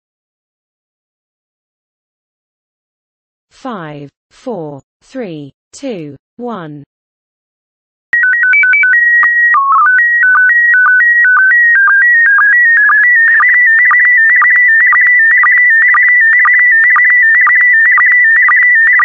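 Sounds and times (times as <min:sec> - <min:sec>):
warbling data signal tones: 0:08.2 - 0:19.0.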